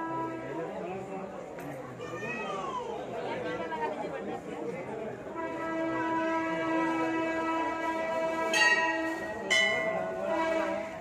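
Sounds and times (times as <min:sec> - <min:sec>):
metal temple bell ringing: 0:08.5 - 0:10.4.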